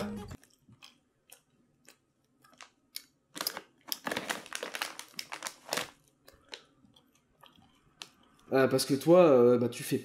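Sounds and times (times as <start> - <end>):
plastic packaging crinkling: 3.3 - 6.7.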